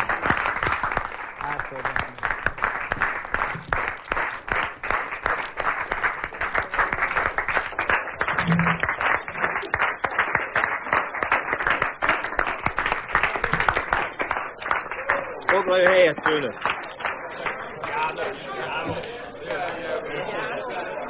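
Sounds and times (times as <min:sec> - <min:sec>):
people applauding: 0:00.0 - 0:21.0.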